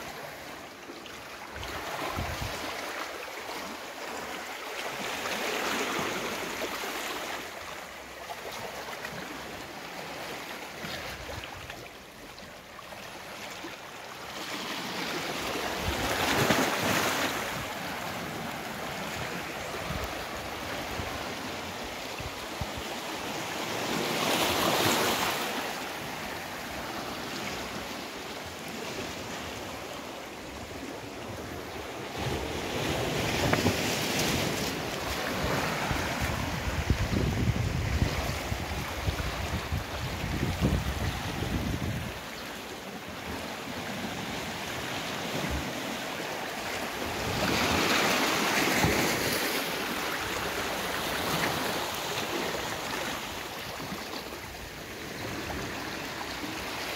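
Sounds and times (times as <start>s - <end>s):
waves lapping among boulders: 0.0s - 56.9s.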